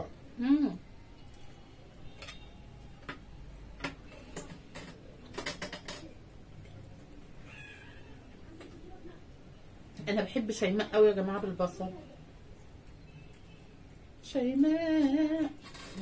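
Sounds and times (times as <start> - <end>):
cutlery clicking on plates: 3.8 - 6.2.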